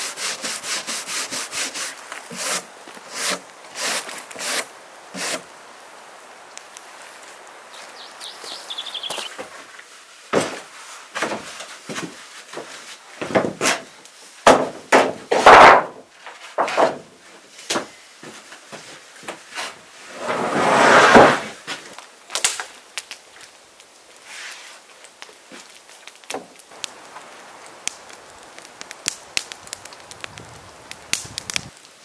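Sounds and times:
planks sliding scrape: 0.4s - 5.4s, 19.5s - 21.6s
wooden planks knocking together: 10.3s - 17.1s.

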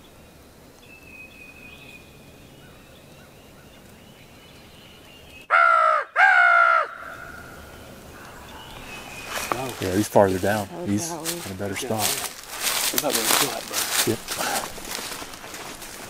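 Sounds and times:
faint birdsong: 0.0s - 16.0s
crow cawing: 5.5s - 8.8s.

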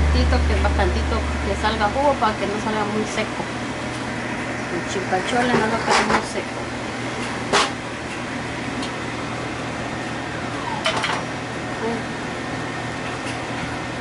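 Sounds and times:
appliance hum: 0.0s - 14.0s.

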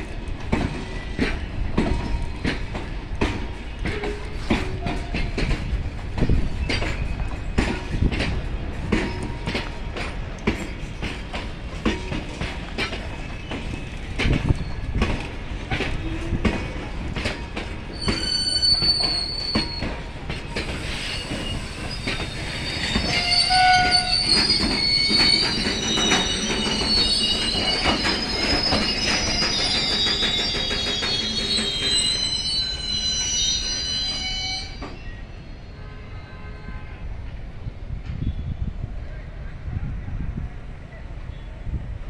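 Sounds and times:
train wheels clacking over rail joints: 0.0s - 32.6s
train wheels squealing: 0.0s - 37.0s.

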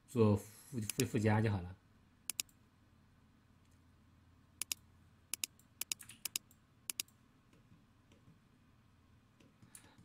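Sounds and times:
computer mouse clicking: 0.8s - 1.2s, 2.3s - 2.6s, 4.6s - 8.4s.

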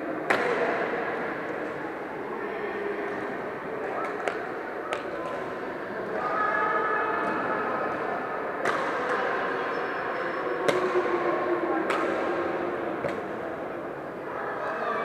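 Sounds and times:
background hubbub: 0.0s - 15.0s
rackets hitting shuttlecock: 0.3s - 0.7s, 8.6s - 9.1s, 11.9s - 12.4s, 13.0s - 13.4s.

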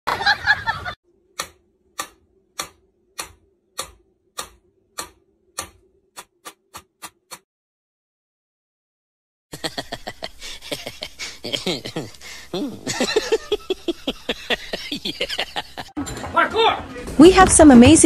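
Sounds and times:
faint steady hum: 9.6s - 15.9s.

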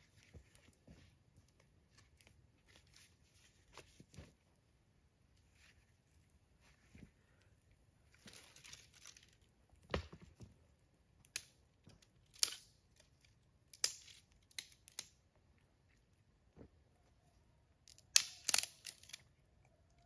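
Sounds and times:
twigs rustling: 0.0s - 4.4s, 5.3s - 9.6s, 17.9s - 19.7s
sticks snapping: 12.3s - 12.8s, 13.7s - 15.2s, 17.9s - 19.3s.

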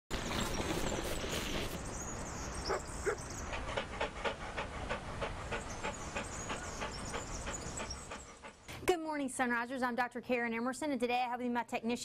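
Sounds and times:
dog panting: 2.6s - 8.7s.

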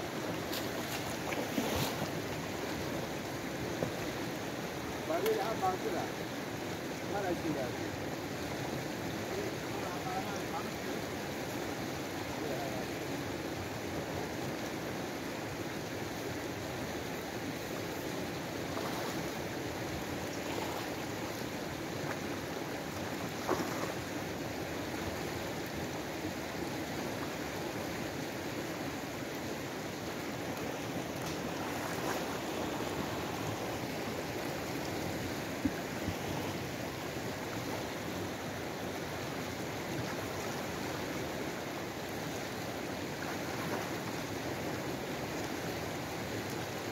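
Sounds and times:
rushing river water: 0.0s - 46.9s.

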